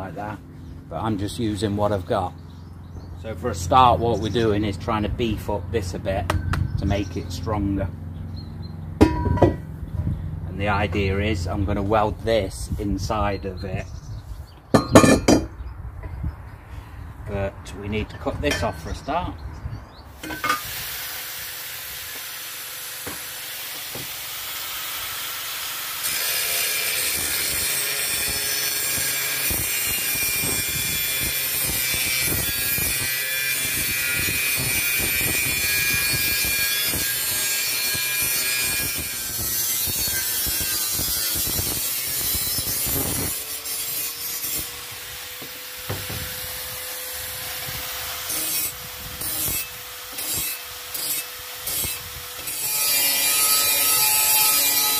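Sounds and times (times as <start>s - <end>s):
grinder cutting steel: 20.2s - 54.9s.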